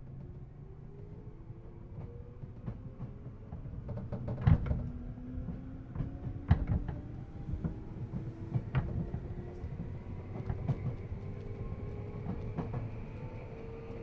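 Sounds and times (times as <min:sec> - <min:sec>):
train running rumble: 0:01.9 - 0:14.0.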